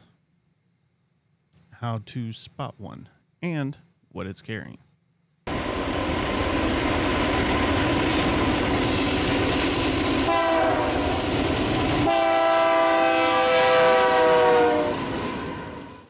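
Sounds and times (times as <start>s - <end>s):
train engines and wheels rumbling: 5.5s - 16.0s
locomotive air horn: 10.2s - 11.1s, 12.0s - 16.0s.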